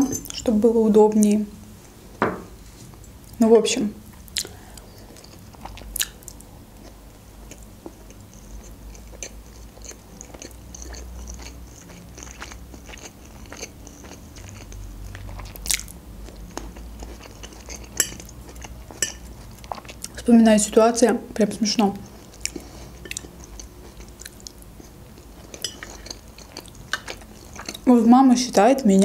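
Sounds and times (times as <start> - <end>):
person chewing: 4.2 - 20.2, 22.0 - 27.9.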